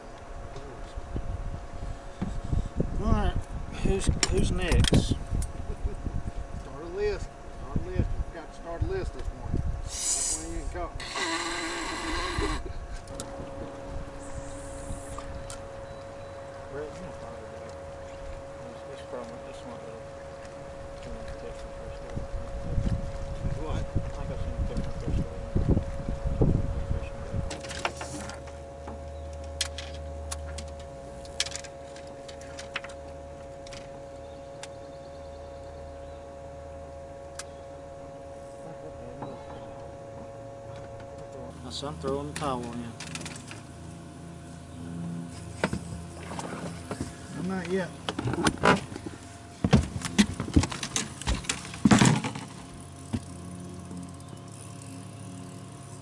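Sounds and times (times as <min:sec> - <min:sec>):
faint high whine: 0:00.0 - 0:56.0
steady low hum: 0:00.0 - 0:56.0
fishing gear clicking: 0:29.3 - 0:33.9.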